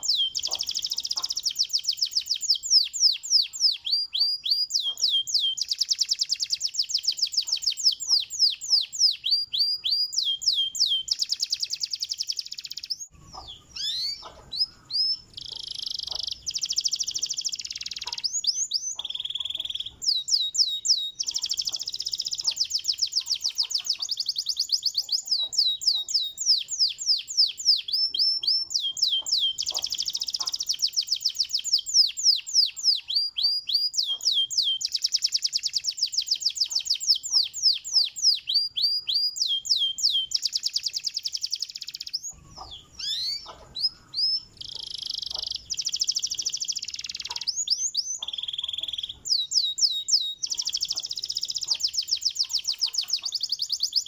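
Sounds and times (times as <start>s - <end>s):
canary singing trills: 0.0s - 54.0s.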